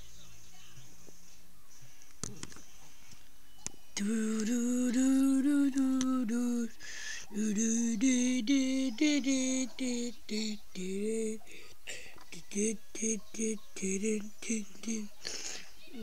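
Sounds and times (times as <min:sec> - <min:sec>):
person singing wordless tune: 0:04.0 - 0:15.7.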